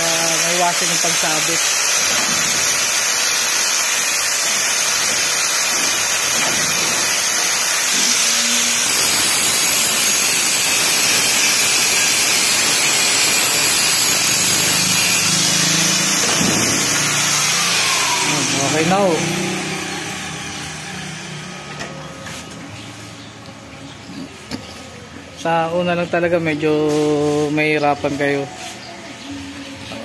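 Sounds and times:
angle grinder sanding steel: 0.0 - 21.7.

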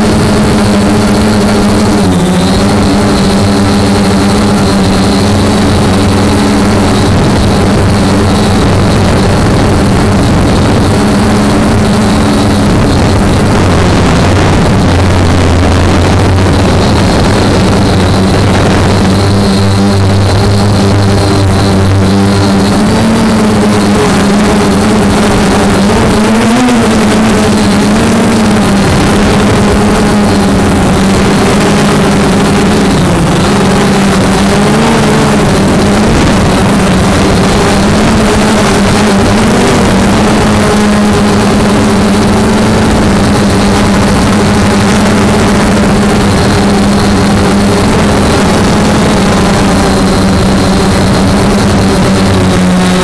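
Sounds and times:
drone propellers buzzing: 0.0 - 53.0.

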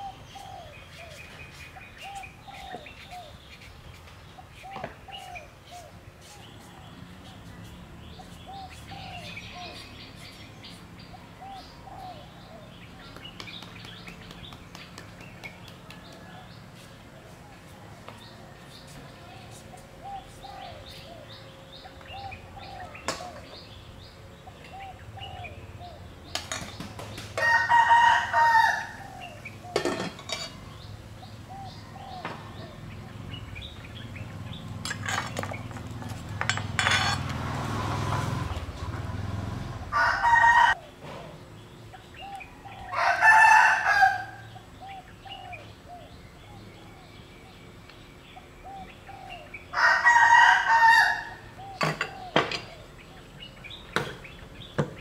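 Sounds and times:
roosters crowing: 25.1 - 30.6, 34.5 - 41.0, 42.2 - 46.0, 48.7 - 52.9
utensils clinking: 29.8 - 30.6, 34.8 - 37.4.

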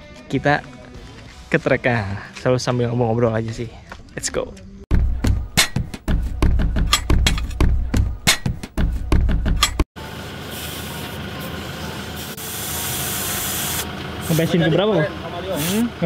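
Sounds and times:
background music with a beat: 4.9 - 9.8
air hissing from tyre valve: 10.4 - 11.2, 12.1 - 14.6, 15.5 - 15.9.

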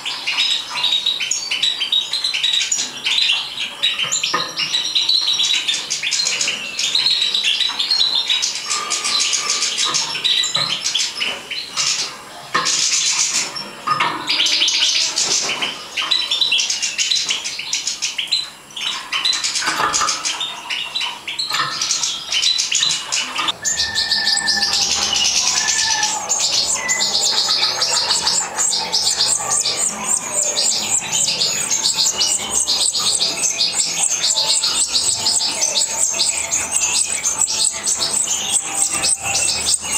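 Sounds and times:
finch twittering song: 12.7 - 39.9.

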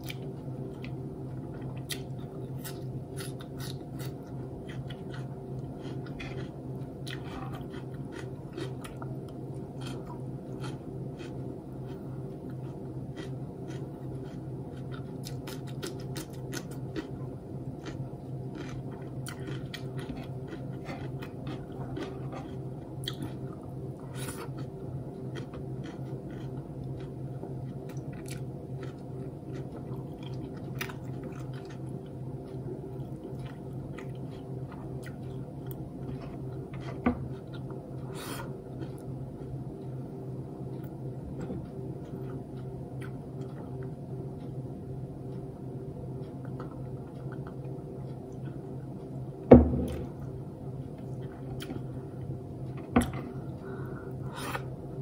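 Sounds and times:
person chewing and biting food: 0.0 - 39.7, 51.0 - 54.8
steady low hum: 0.0 - 55.0.

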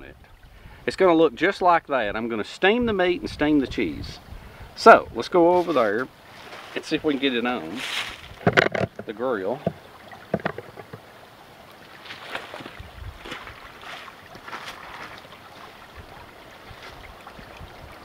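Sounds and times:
creek rushing: 4.2 - 18.0.

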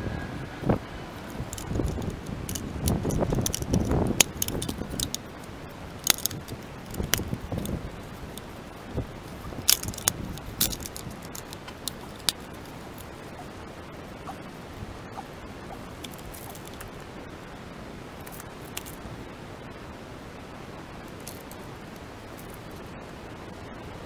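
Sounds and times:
plastic parts clicking and clattering: 1.5 - 5.2, 6.0 - 7.7, 9.7 - 12.4
rustling handling noise: 9.2 - 13.2, 15.8 - 17.1.

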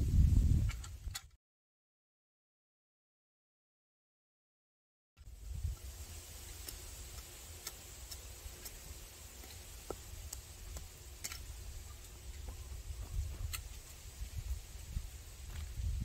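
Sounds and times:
wind rumbling on microphone: 0.0 - 1.4, 5.2 - 7.2, 9.8 - 16.0.

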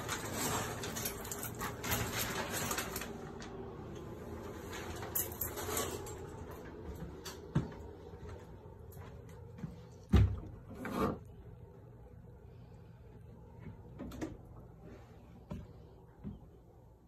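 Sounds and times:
footsteps: 6.2 - 10.5.

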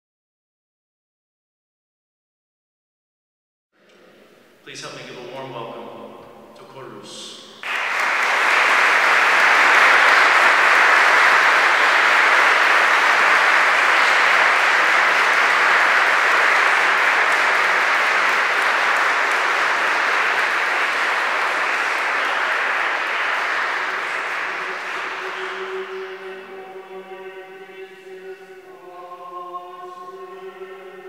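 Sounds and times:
audience applauding: 7.6 - 28.4.

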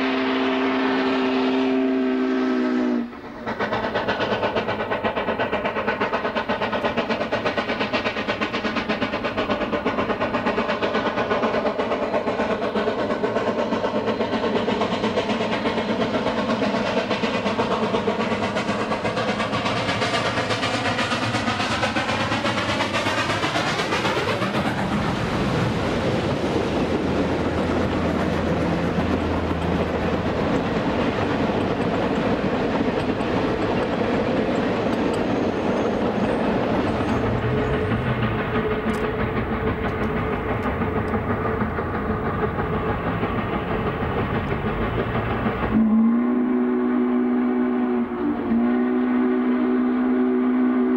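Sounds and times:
steam locomotive passing: 0.0 - 50.9
wheels clicking over rail joints: 3.1 - 45.8.

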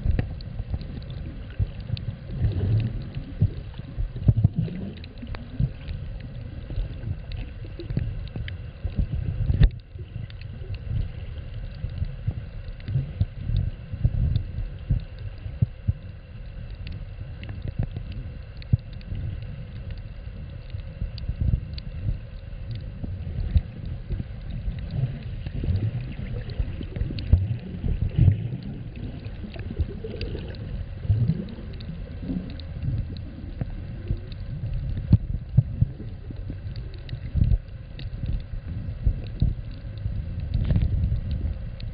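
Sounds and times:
faint high hum: 0.0 - 41.9
water sloshing and gurgling: 0.0 - 41.9
low underwater thumps: 1.6 - 5.8.

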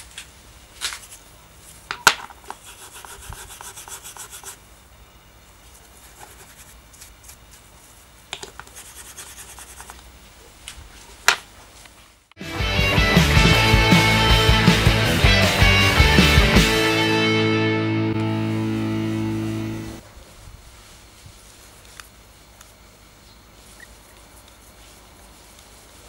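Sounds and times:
fast fine rasping strokes: 2.4 - 4.6, 5.7 - 10.0.

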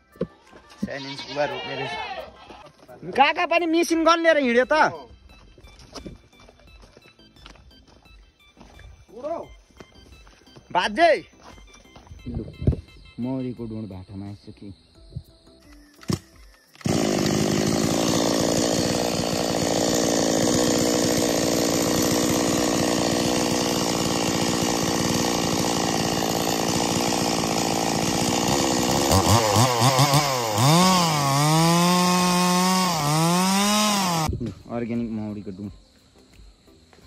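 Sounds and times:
chainsaw engine revving: 16.8 - 34.3.

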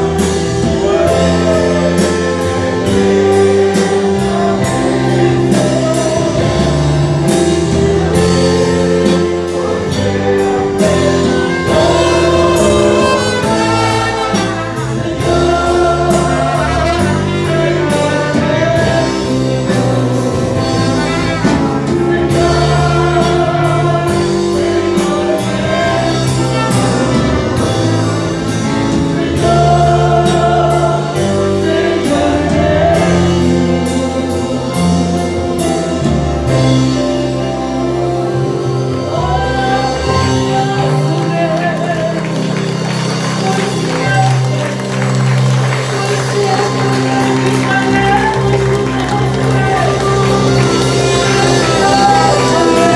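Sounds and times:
amplified band: 0.0 - 52.9
trumpet playing: 0.0 - 52.9
voices singing gospel: 0.0 - 52.9.

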